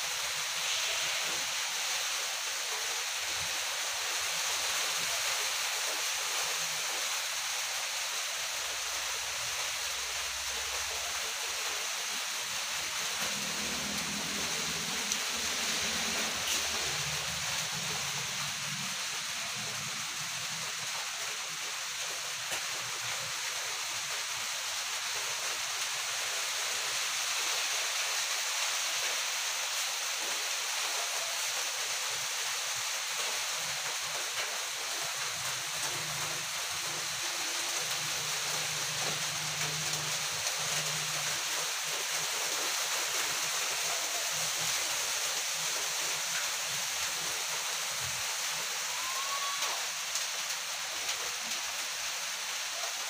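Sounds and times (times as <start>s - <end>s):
rain falling steadily: 0.0s - 53.0s.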